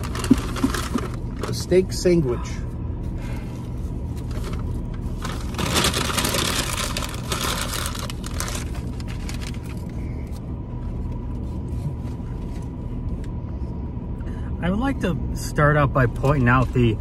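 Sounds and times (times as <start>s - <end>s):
food wrappers crinkling: 0.0s - 1.6s, 4.2s - 9.9s
low car rumble: 0.0s - 17.0s.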